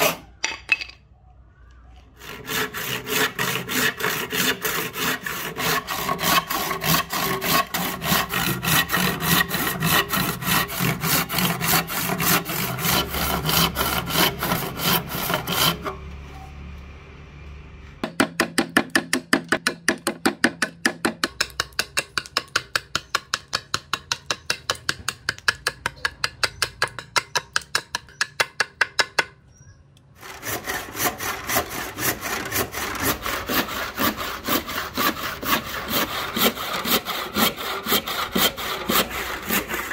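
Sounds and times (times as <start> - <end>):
hand saw cutting wood: 0.0 - 0.3, 2.2 - 16.2, 30.2 - 39.9
hand tool chipping wood: 2.3 - 16.0, 18.0 - 29.4, 30.2 - 39.9.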